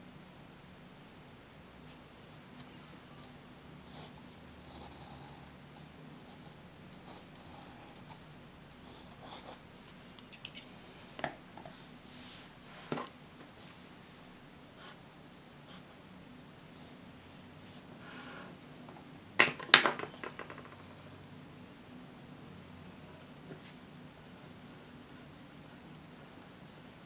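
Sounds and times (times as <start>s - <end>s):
faint low room hum: 0.0s - 27.0s
pens clicking and tapping on desk: 19.4s - 20.8s.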